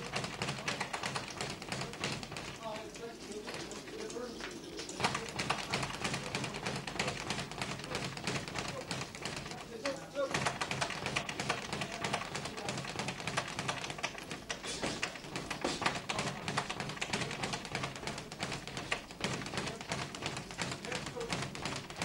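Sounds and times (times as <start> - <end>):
footwork taps on canvas: 5.0 - 22.0
gloves landing: 5.0 - 22.0.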